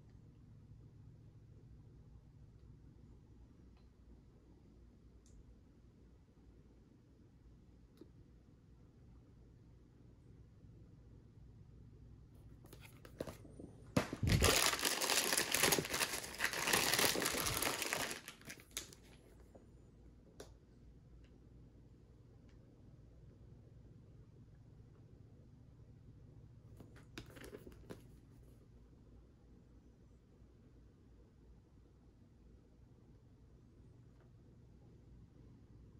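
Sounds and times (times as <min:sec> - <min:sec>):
plastic packing material crinkling: 0:14.0 - 0:19.2.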